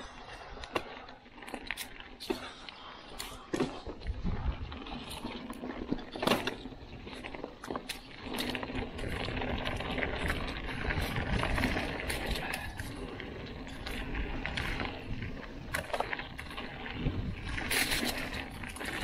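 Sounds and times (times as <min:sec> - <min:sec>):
bike clicks and rattles: 0:00.0 - 0:19.0
bike tyres on dirt and leaves: 0:00.0 - 0:19.0
wind rumble on microphone: 0:03.8 - 0:05.6, 0:08.3 - 0:19.0.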